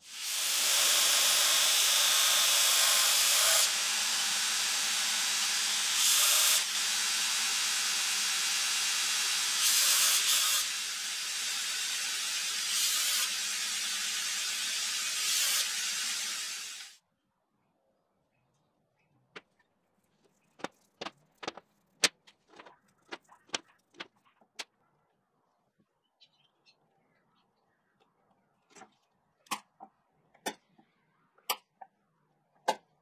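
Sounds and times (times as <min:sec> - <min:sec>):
belt grinder grinding steel: 0:00.1 - 0:17.0.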